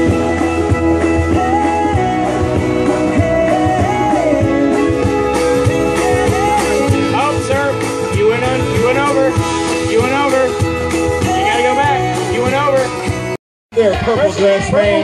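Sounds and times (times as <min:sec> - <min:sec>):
rock music with guitar: 0:00.0 - 0:13.4
person singing: 0:01.0 - 0:09.5.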